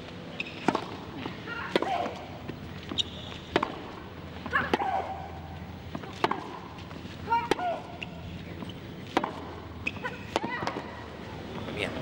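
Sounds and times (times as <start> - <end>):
tennis racket hitting ball: 0.6 - 2.2, 2.9 - 5.3, 5.9 - 8.1, 9.1 - 11.0.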